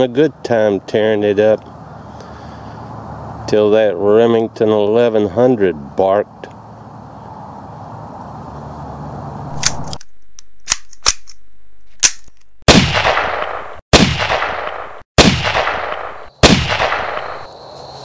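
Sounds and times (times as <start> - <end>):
sharp clicks: 9.5 - 11.4
gunshots with echo: 12.7 - 17.5.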